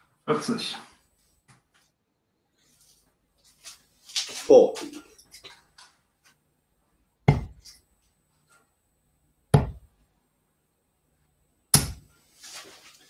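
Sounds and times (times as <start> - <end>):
darts striking dartboard: 7.3 - 7.7, 9.5 - 9.9, 11.7 - 12.1.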